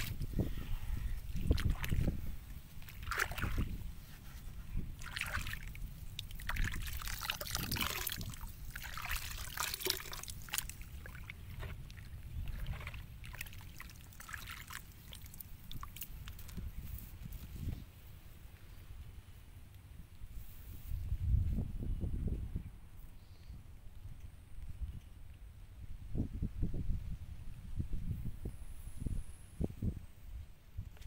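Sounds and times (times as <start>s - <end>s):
hand sloshing thick liquid: 0.0s - 0.3s, 1.3s - 16.6s.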